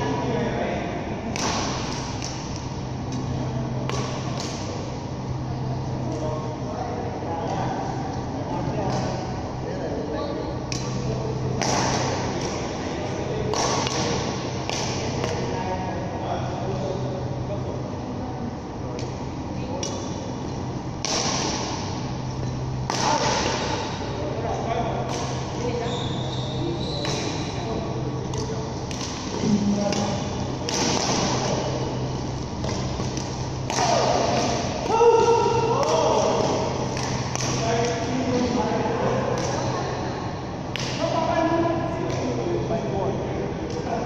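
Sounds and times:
players' voices: 0.0 - 44.0
steady low hum: 0.0 - 44.0
rackets hitting shuttlecocks: 1.3 - 4.8, 10.7 - 15.5, 21.0 - 24.0, 28.2 - 38.2.

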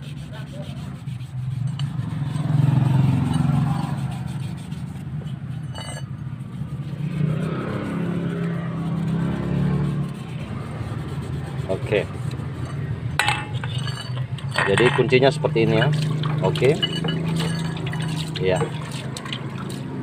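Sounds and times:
vehicle engine revving: 1.5 - 5.6, 6.2 - 13.2.

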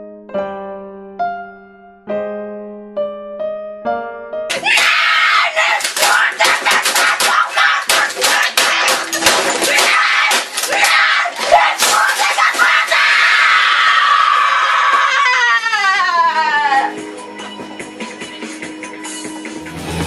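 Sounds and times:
electric piano tune: 0.0 - 4.5
hitting keyboard and desk: 4.5 - 13.0
boy screaming: 4.5 - 16.9.

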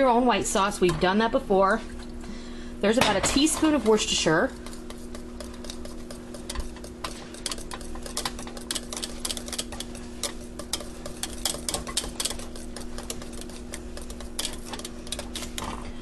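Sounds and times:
steady low hum: 0.0 - 16.0
whisk clicking against saucepan: 3.1 - 15.7.

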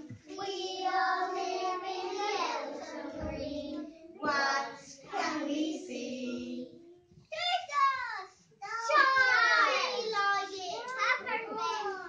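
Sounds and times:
young children singing: 0.0 - 7.1, 8.6 - 12.0.

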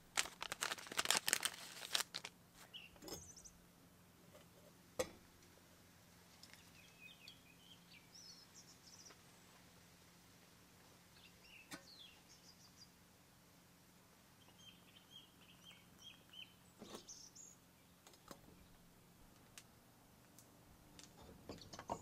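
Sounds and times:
low steady hum: 0.0 - 22.0
faint bird chirps: 2.6 - 3.6, 6.5 - 9.2, 11.1 - 13.0, 14.4 - 18.8.

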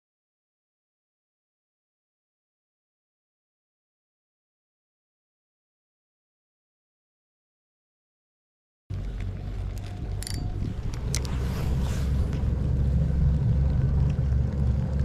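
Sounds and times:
wind buffeting microphone: 9.0 - 15.0.

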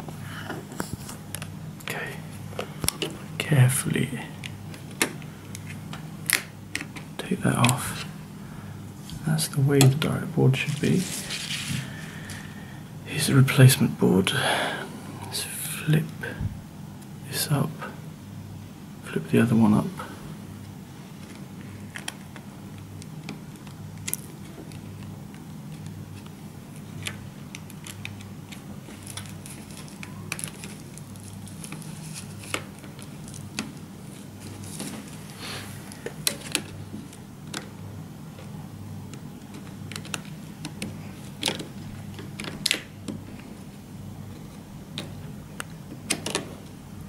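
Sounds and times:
steady low hum: 0.0 - 47.0
fingers clicking cable latches: 45.0 - 46.6.

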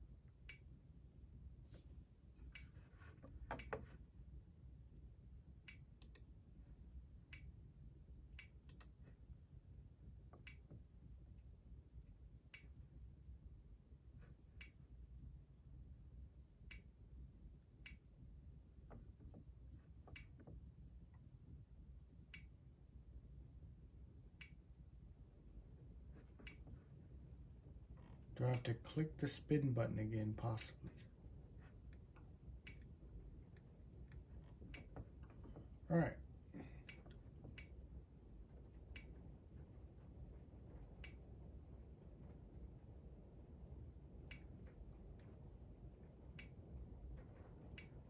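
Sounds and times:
low steady hum: 0.0 - 48.0
faint sharp clicks: 5.6 - 6.3, 8.4 - 9.0, 16.6 - 16.9, 26.2 - 26.8, 31.9 - 32.9, 38.8 - 39.3, 40.9 - 41.2.

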